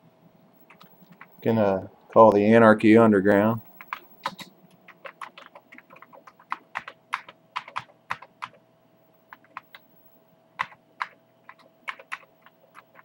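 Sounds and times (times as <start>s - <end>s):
keyboard key clicks: 3.8s - 8.6s.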